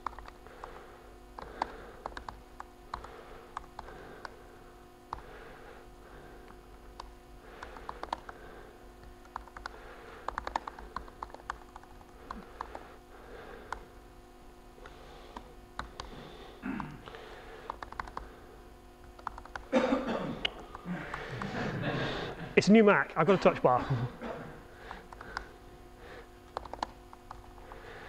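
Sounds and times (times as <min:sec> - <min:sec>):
laptop keyboard typing: 0:00.0 - 0:04.4, 0:05.1 - 0:05.3, 0:06.9 - 0:08.4, 0:09.0 - 0:12.9, 0:14.8 - 0:16.1, 0:17.5 - 0:18.4, 0:19.0 - 0:19.7, 0:24.9 - 0:25.5, 0:26.5 - 0:27.8
steady low hum: 0:00.0 - 0:28.0.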